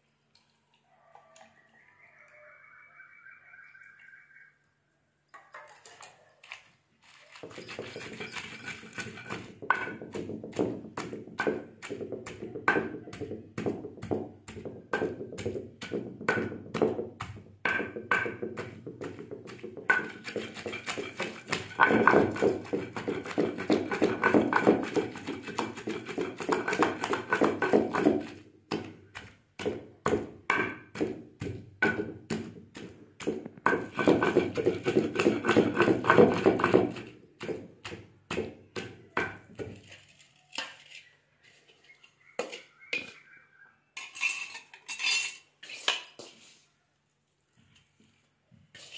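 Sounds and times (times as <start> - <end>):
pestle thudding in stone mortar: 7.3 - 40.0.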